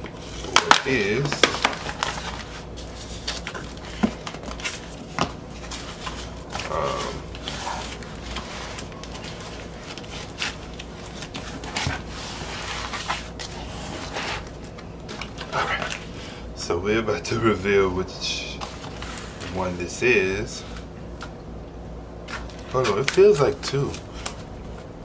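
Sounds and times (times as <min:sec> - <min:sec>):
cardboard mailer being handled: 0:00.1 - 0:16.2, 0:22.2 - 0:24.9.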